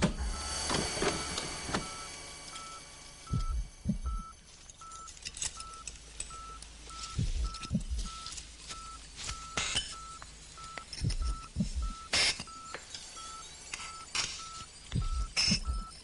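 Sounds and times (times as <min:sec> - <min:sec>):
short electronic beeps: 0:00.3 - 0:16.0
low knocks: 0:03.3 - 0:04.2.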